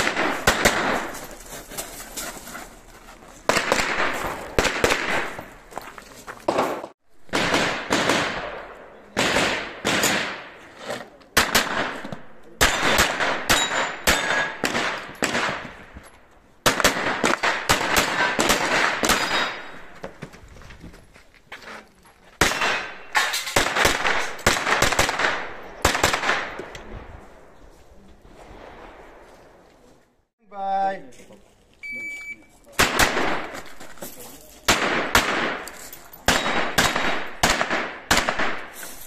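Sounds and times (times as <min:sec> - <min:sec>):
rapid gunshots with echo: 0:00.0 - 0:01.2, 0:03.5 - 0:05.4, 0:06.5 - 0:10.6, 0:36.3 - 0:38.7.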